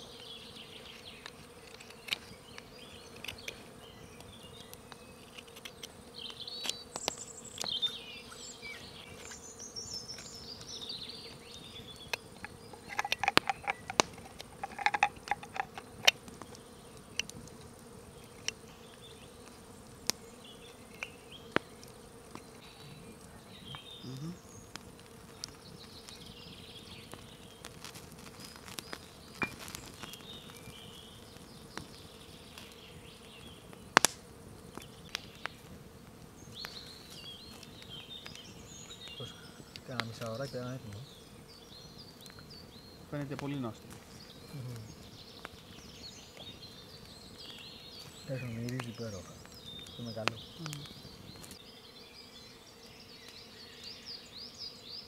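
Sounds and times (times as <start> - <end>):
insect buzzing: 0.0 - 55.0
knife carving wood: 4.5 - 6.0, 12.0 - 16.6.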